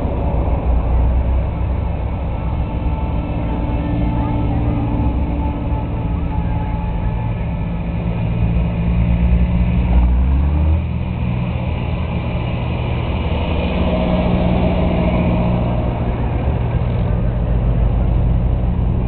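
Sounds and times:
deep engine rumble: 0.0 - 19.0
tractor engines running: 0.0 - 19.0.

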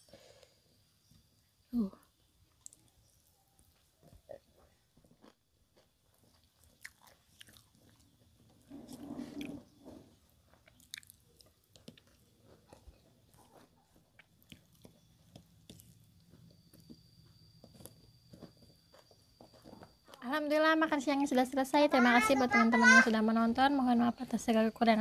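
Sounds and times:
person chewing: 4.0 - 20.2.

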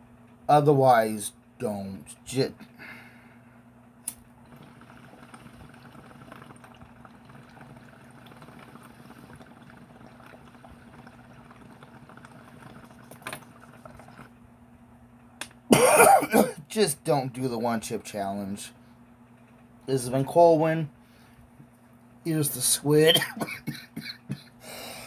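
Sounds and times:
sharp click: 4.0 - 4.2
water bubbling in a bong: 4.4 - 14.4.

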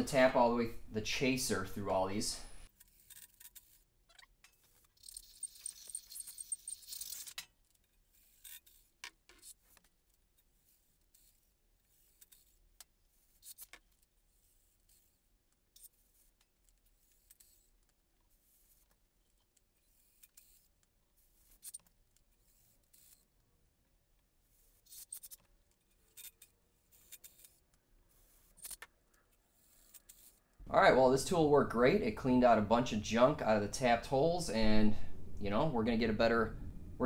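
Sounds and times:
faint metallic clicks and scrapes: 2.6 - 30.6.

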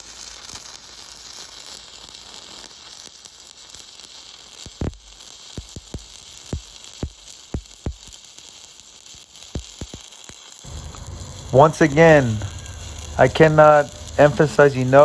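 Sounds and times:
welding arc frying hiss: 0.0 - 15.0
welding arc sharp pops: 2.3 - 15.0.

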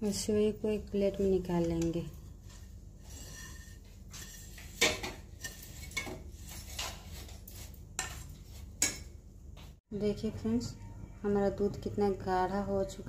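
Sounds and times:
spoon scraping frying pan: 1.6 - 9.1.

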